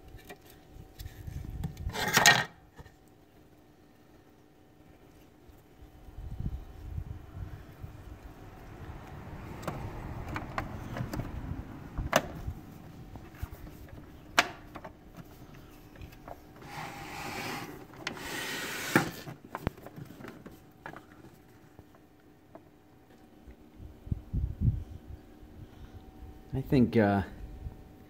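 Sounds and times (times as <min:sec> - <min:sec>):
rubbing and handling noise: 0:10.2 - 0:22.8.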